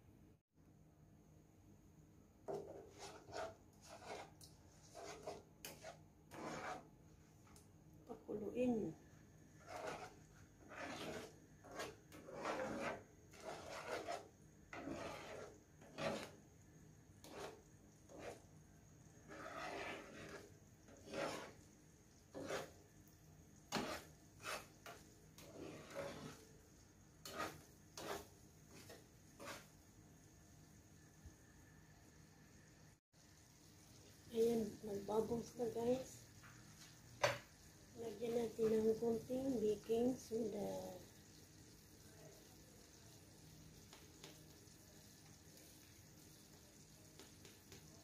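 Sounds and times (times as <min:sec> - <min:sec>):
spoon scraping through caramel: 0:02.5 - 0:06.9, 0:09.5 - 0:16.4, 0:17.2 - 0:18.5, 0:19.2 - 0:22.9, 0:23.6 - 0:26.6, 0:27.2 - 0:29.8.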